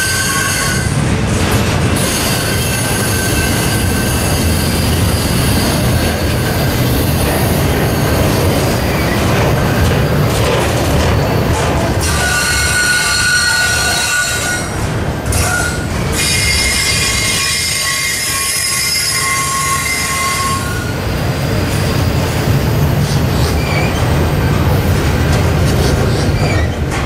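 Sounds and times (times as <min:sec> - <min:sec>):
train wheels squealing: 0:00.0 - 0:01.0, 0:02.0 - 0:09.3, 0:12.0 - 0:14.7, 0:15.4 - 0:21.0, 0:23.0 - 0:24.2, 0:25.8 - 0:26.9
low rumble of train cars: 0:00.0 - 0:27.0.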